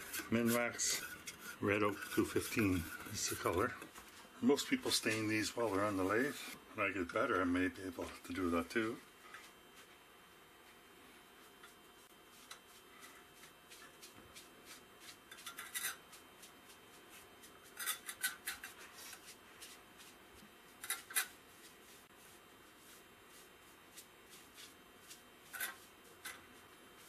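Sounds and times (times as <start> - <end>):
scratchy rubbing on wood: 0.0 - 3.6.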